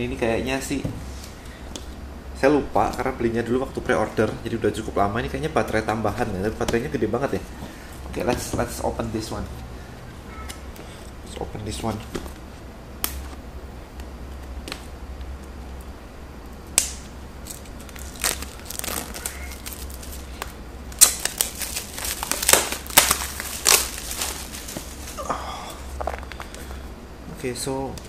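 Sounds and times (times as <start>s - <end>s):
plastic wrap crinkling: 16.9s - 26.8s.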